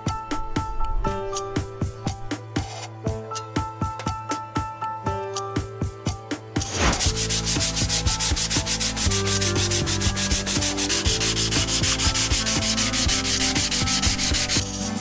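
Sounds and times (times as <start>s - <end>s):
hand sanding steel: 6.7s - 15.0s.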